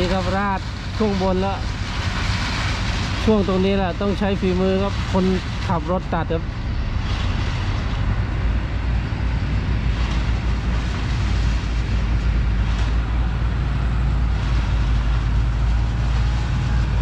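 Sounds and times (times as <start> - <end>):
distant diesel engines rumbling: 0.0 - 17.0.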